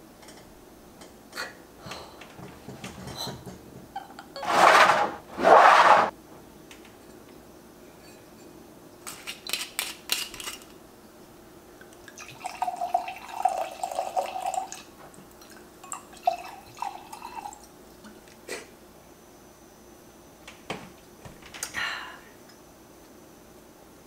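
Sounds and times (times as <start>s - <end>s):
wine pouring into a glass: 12.1s - 14.9s, 15.8s - 17.6s.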